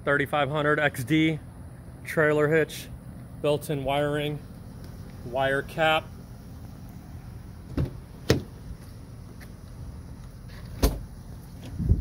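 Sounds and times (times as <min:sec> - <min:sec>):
van door clunk: 0:07.6 - 0:09.6, 0:10.4 - 0:12.0.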